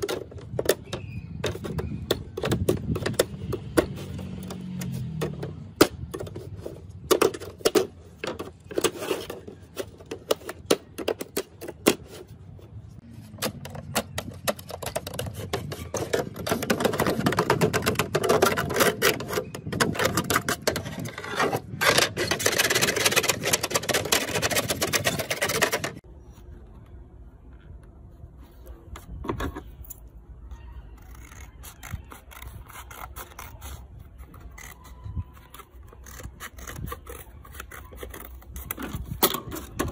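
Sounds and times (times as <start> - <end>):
continuous scratching and rubbing: 0.0 - 26.8, 30.5 - 39.9.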